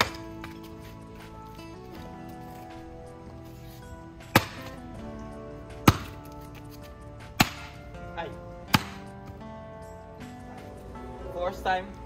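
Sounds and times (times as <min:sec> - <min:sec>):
axe chopping wood: 0:00.0 - 0:00.6, 0:04.2 - 0:04.8, 0:05.7 - 0:07.9, 0:08.6 - 0:09.4
background music: 0:00.0 - 0:12.0.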